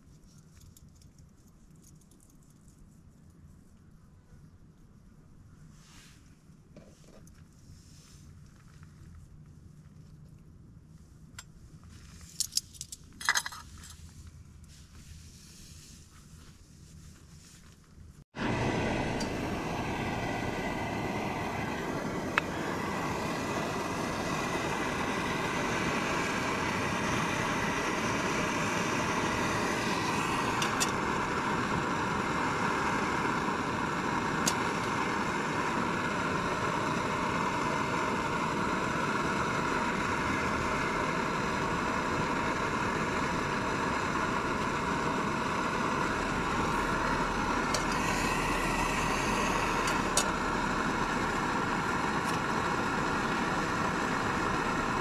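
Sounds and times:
steady rushing noise: 18.4s - 55.0s.

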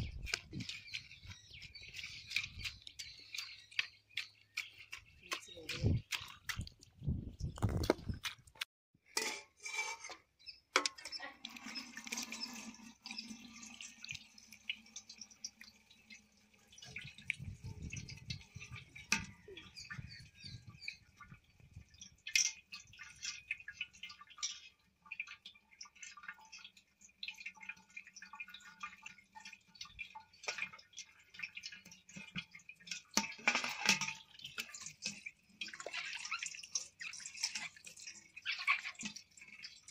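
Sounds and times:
watermelon squelching and splashing: 0.0s - 8.7s, 27.2s - 39.9s
steel vessels clinking: 9.0s - 14.2s, 31.8s - 39.9s.

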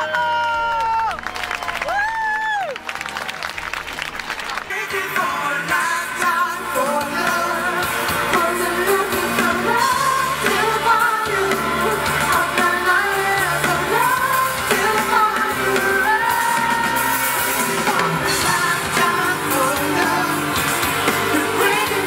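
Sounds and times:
live pop band playing: 4.4s - 22.0s
lead singer singing: 4.7s - 22.0s.

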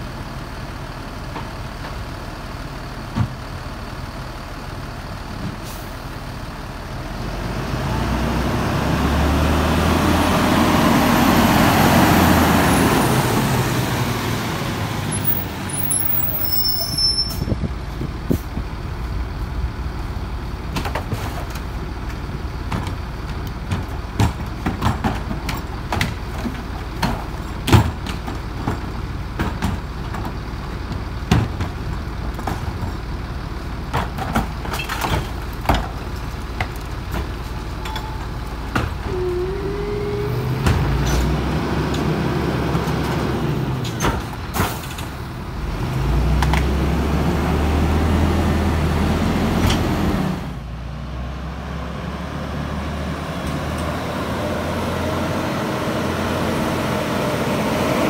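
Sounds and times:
garbage truck diesel engine: 0.0s - 58.0s
trash carts knocking and banging: 20.6s - 39.1s, 39.8s - 46.9s.

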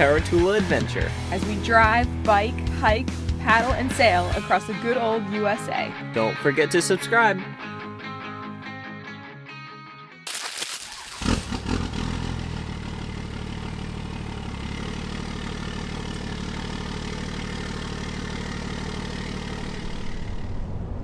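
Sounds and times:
truck engine starting and idling: 0.0s - 4.4s, 10.8s - 21.0s.

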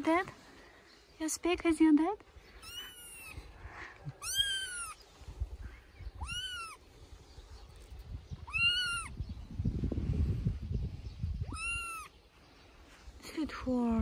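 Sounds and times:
kitten meowing loudly: 4.2s - 5.0s, 6.2s - 6.8s, 8.4s - 9.1s, 11.4s - 12.1s.

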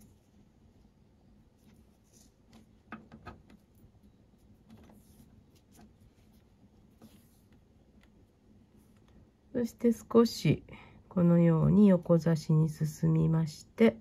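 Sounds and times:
paracord rustling and clicking: 1.5s - 8.2s.

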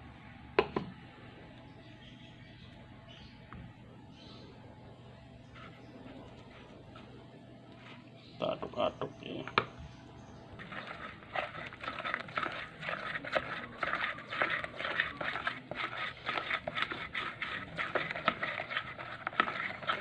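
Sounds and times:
spatula stirring batter: 5.3s - 8.1s, 10.5s - 20.0s.

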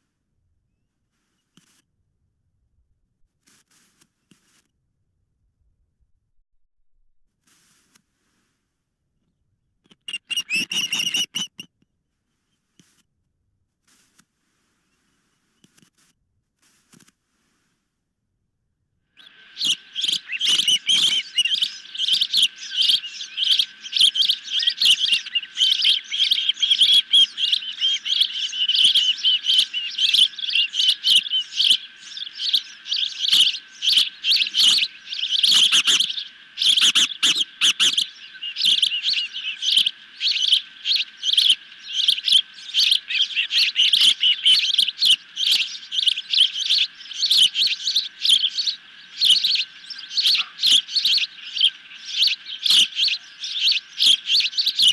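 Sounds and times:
ospreys chirping: 9.9s - 11.7s, 19.2s - 54.9s.

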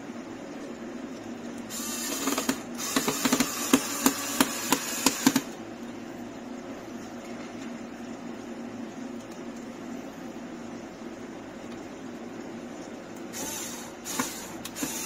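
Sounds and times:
electric screwdriver running: 1.7s - 5.5s, 13.4s - 15.0s.

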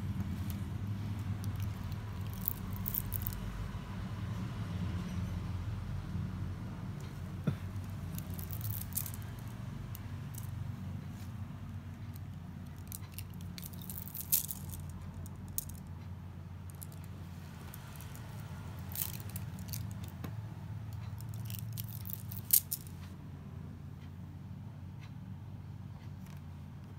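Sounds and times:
steady low hum: 0.0s - 26.9s
beads clicking and rattling: 0.2s - 3.7s, 7.0s - 15.9s, 16.6s - 20.3s, 20.9s - 23.0s.

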